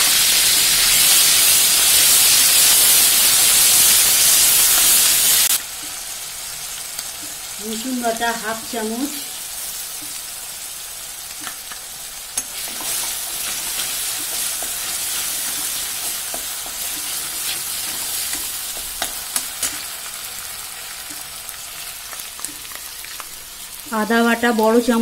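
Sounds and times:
paste sizzling in hot oil: 0.0 - 24.9
metal spatula scraping a pan: 11.4 - 20.0.

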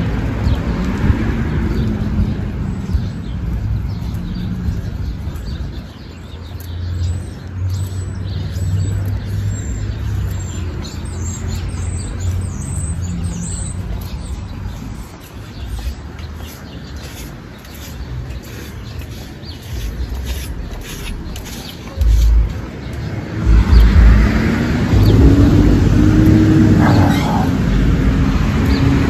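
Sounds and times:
small birds chirping: 0.0 - 29.0
street traffic rumble: 0.0 - 29.0.

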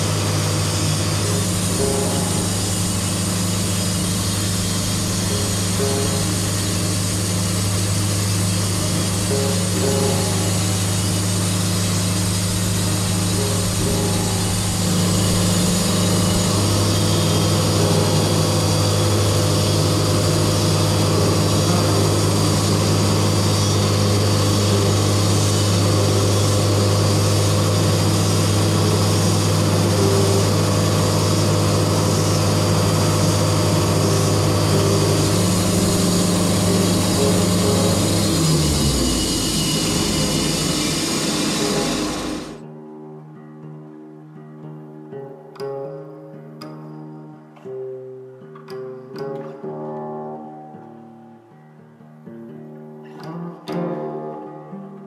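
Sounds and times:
bandsaw mill sawing log: 0.0 - 42.6.

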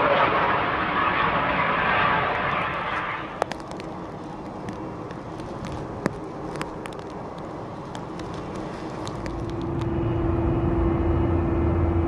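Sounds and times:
jet engines whining and rumbling: 0.0 - 12.0.

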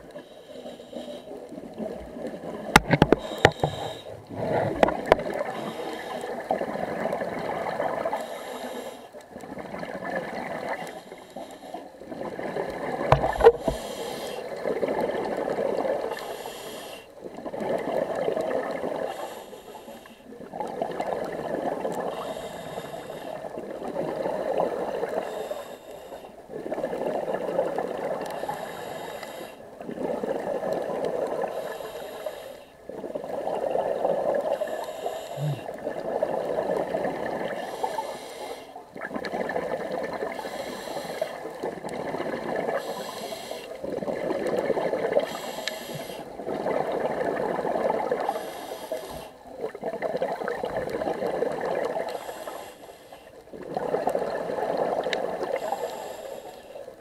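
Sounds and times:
bubbling exhalations underwater: 35.4 - 37.5.

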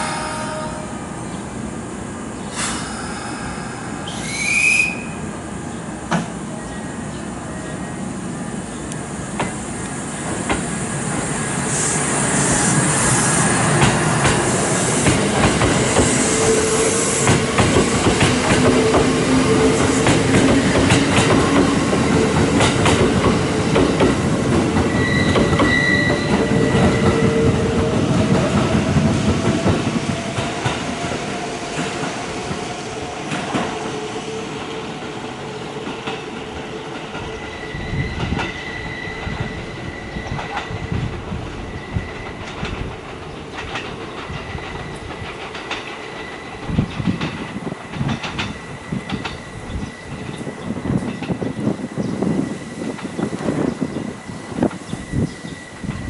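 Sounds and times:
high flange squeal: 2.4 - 5.8, 24.8 - 29.2, 36.8 - 42.8
wheels clacking over rail joints: 40.2 - 51.5.

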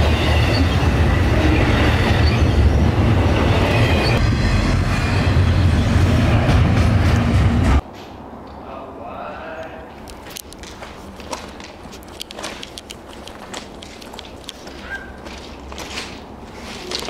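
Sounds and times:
high wheel squeal: 0.0 - 5.7
freight train wheels rumbling: 0.0 - 8.4.

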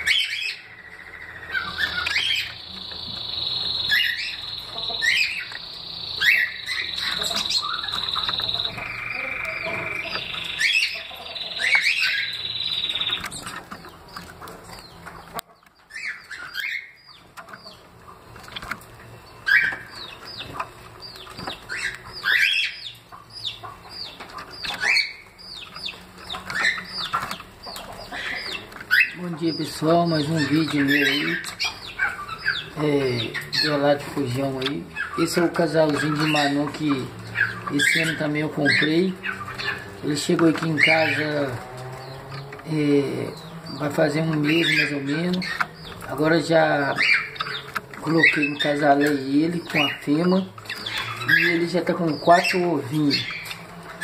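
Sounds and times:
finches chirping: 0.0 - 54.0.

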